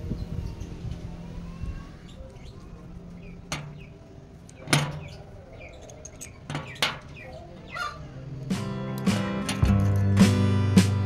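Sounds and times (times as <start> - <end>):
steady low hum: 0.0 - 11.0
steel parts clinking: 2.3 - 7.8
sharp metal knocks: 3.3 - 7.8, 8.5 - 10.5.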